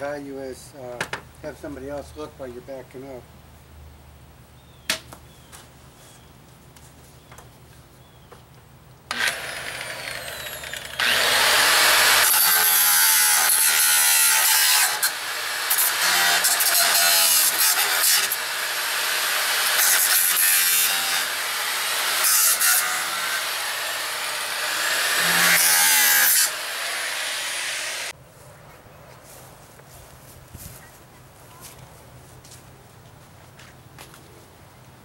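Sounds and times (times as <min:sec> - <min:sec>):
angle grinder grinding wood: 0:09.1 - 0:28.2
angle grinder running free: 0:09.1 - 0:28.2.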